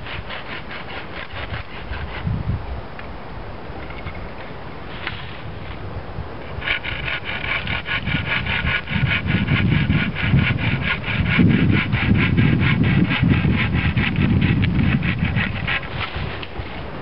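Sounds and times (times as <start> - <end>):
saw rasping through wood: 0.0 - 2.4, 6.4 - 16.7.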